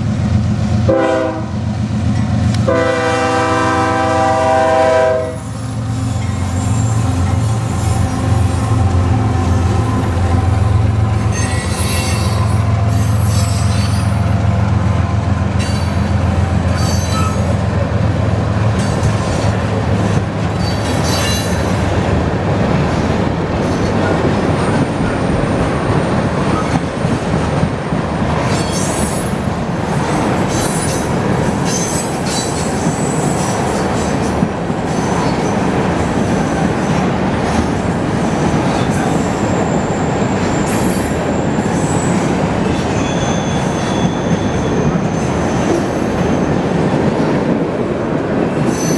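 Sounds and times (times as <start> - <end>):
freight train rumbling past: 0.0 - 48.9
high-pitched wheel squeal: 11.2 - 14.2, 16.7 - 17.6, 39.0 - 46.2
wheels clattering on rails: 15.4 - 47.8.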